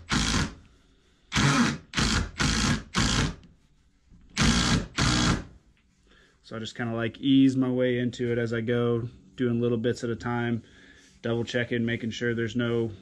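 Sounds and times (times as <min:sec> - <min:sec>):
impact driver hammering: 0:00.0 - 0:00.6, 0:01.3 - 0:03.4, 0:04.4 - 0:05.5.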